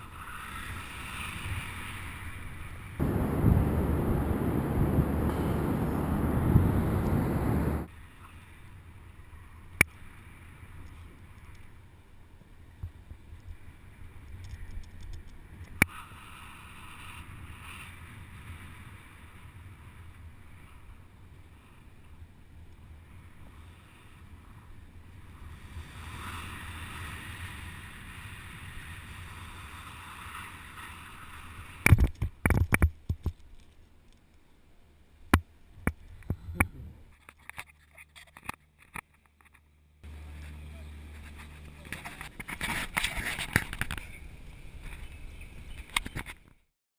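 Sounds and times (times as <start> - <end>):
crackling wind buffets: 0.1 - 8.0
wind rushing over microphone: 3.0 - 7.9.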